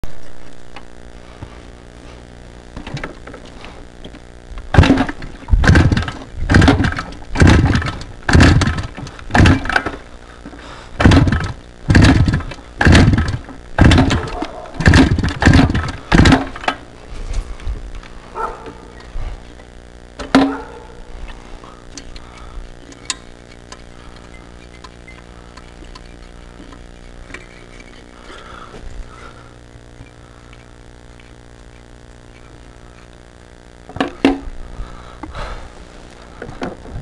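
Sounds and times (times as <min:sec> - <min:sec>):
dirt bike kick-start attempts: 0:02.8 - 0:16.9, 0:20.2 - 0:29.4.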